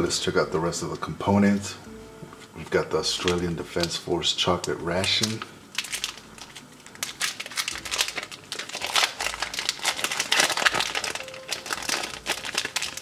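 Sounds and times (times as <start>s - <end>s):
wrapper crinkling: 2.6s - 13.0s.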